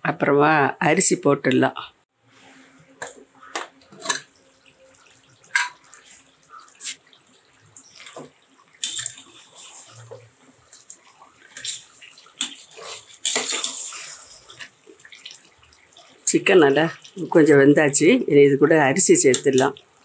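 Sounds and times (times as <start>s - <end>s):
ladle scraping and knocking pot: 3.0s - 4.3s
wet squelching: 5.0s - 17.2s.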